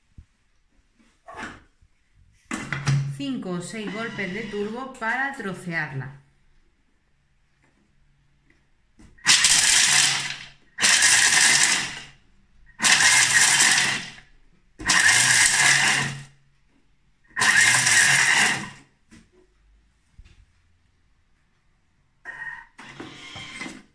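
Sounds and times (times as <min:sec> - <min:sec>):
food processor chopping nuts: 0:03.8 - 0:04.8, 0:09.2 - 0:16.3, 0:17.3 - 0:18.8, 0:22.8 - 0:23.9.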